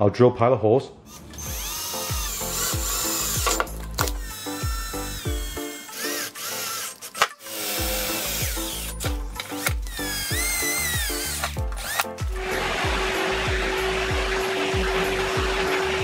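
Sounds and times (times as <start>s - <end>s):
cordless drill drilling sheet metal: 1.1s - 15.4s
background music with beat: 7.6s - 16.0s.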